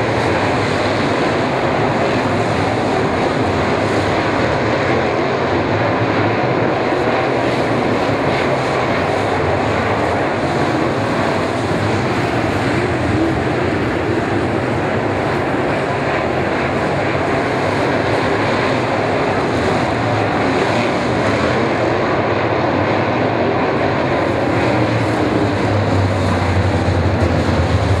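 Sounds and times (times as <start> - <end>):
race car engines running hard: 0.0 - 28.0
deep engine note of passing cars: 18.4 - 28.0.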